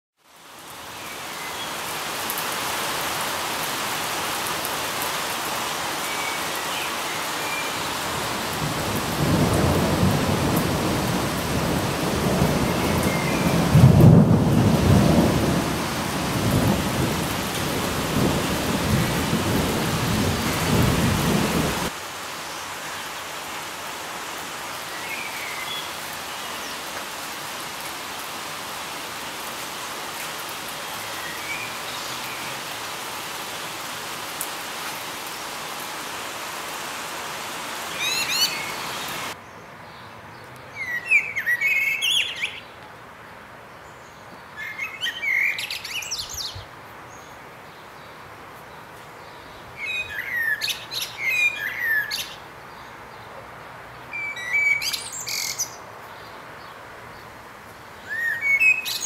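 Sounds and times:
steady rain falling: 0.2 - 59.0
low rumble of thunder: 8.6 - 21.9.

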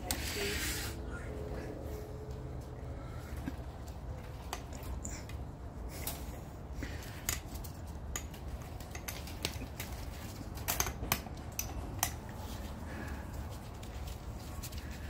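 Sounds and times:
low steady rumble: 0.0 - 8.8.

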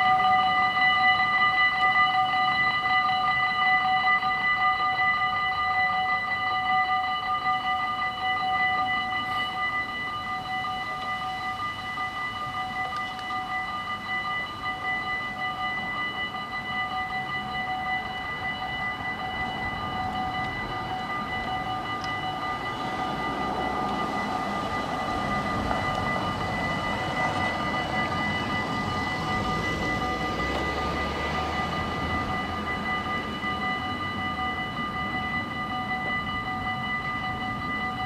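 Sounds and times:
level crossing bell ringing: 0.0 - 38.0
train rumbling past: 7.6 - 38.0.

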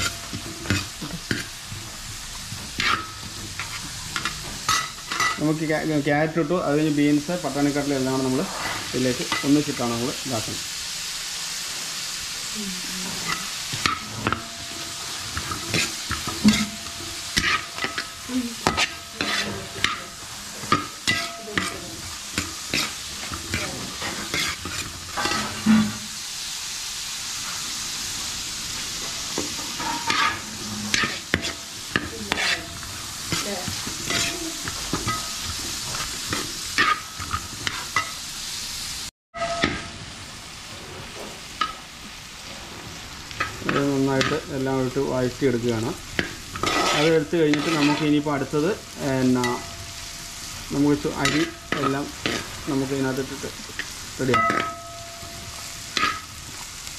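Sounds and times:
vegetables sizzling in a pot: 0.0 - 56.9
steel skimmer scraping a pot: 13.0 - 21.9, 22.6 - 26.1, 29.7 - 31.6, 46.5 - 48.8.

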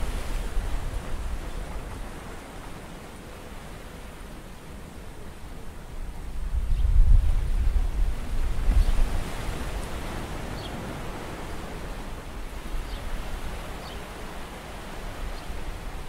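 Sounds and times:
wind buffeting microphone: 0.0 - 2.8, 6.2 - 16.0
sea waves on rocky shore: 0.0 - 6.4, 7.9 - 16.0.

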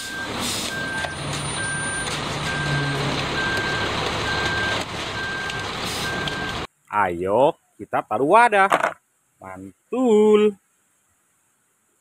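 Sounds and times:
backup alarm beeping: 0.0 - 6.7
truck engine and drum running: 0.0 - 6.7.

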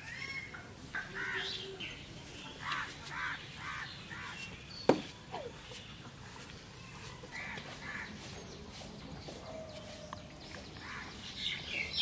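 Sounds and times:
bird calling: 0.0 - 8.6.

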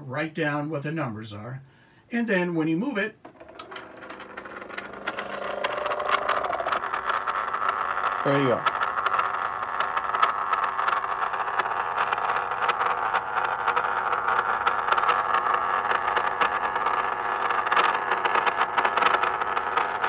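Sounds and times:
stepper motor whining and rattling: 3.3 - 20.0.

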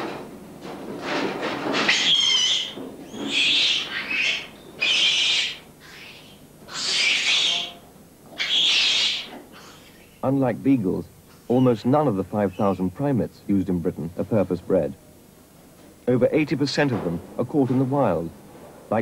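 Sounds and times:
baboon screaming: 1.8 - 10.0.

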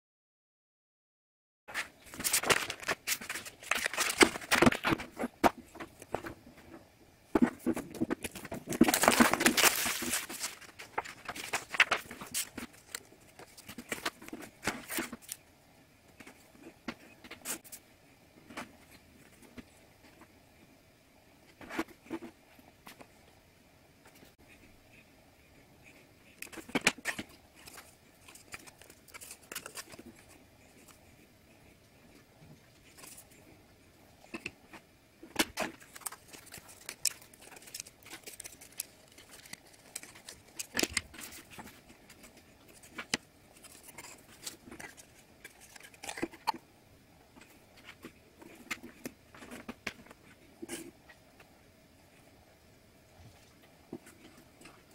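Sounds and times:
foam pieces clicking and rustling: 7.9 - 15.4, 35.4 - 42.2.

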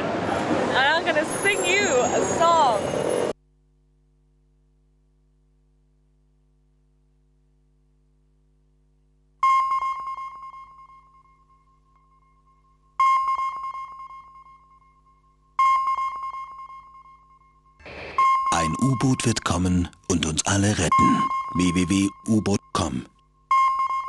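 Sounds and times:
sonar pings: 9.4 - 19.5, 20.6 - 24.0.

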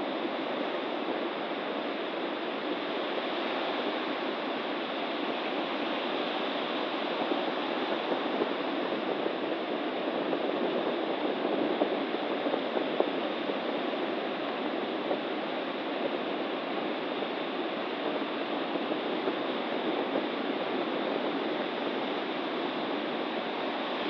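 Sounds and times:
stormy surf breaking on beach: 0.0 - 24.0.

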